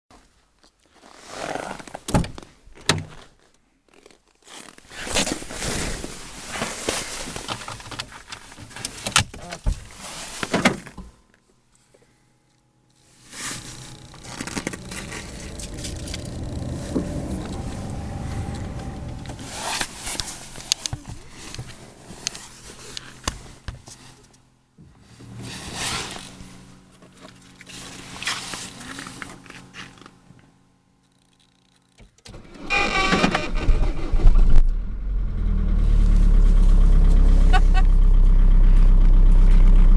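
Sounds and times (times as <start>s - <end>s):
faint steady hum: 11.1s - 23.4s
scraping and rustling: 13.0s - 24.2s.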